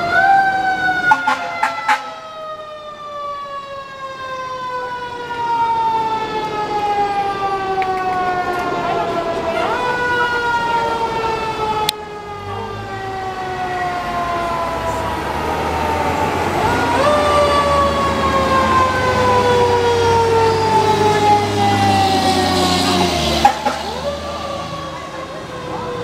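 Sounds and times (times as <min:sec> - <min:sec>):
fire engine siren wailing: 0:00.0 - 0:26.0.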